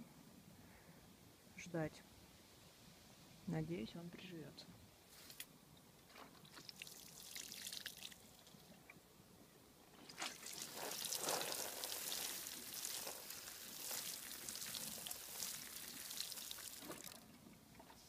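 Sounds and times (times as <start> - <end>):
water sprinkling from watering can: 6.5 - 8.5, 10.1 - 17.2.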